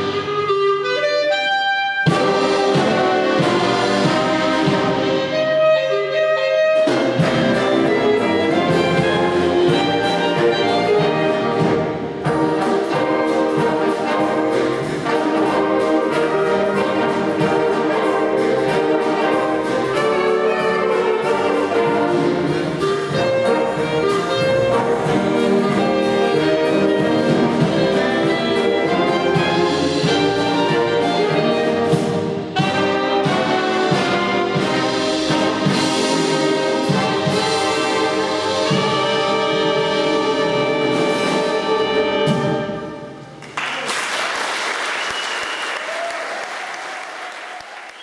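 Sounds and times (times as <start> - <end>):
wind band playing jazz: 0.0 - 48.0
audience applause: 43.4 - 48.0.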